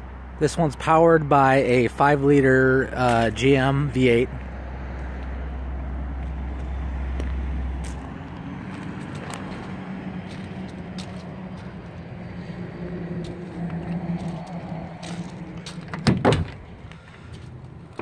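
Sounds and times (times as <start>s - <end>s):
vehicle engine hum: 0.0s - 18.0s
footsteps crunching on gravel: 3.0s - 3.4s, 6.2s - 17.8s.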